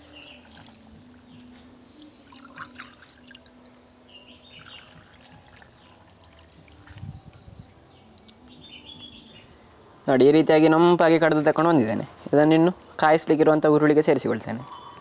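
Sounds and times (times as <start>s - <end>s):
milk trickling and splashing: 0.0s - 0.9s, 2.1s - 3.8s, 4.5s - 7.2s.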